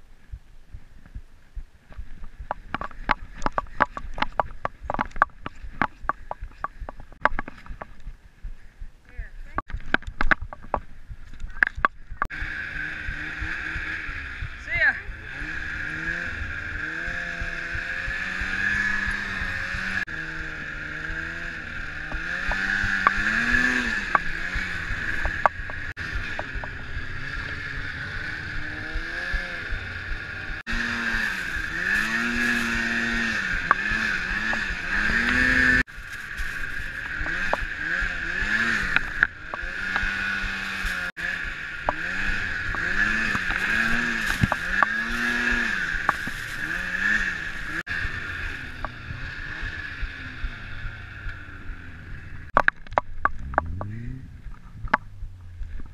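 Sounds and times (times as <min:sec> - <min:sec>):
snowmobile engine revving: 0:12.2 - 0:52.6, 0:53.3 - 0:55.7.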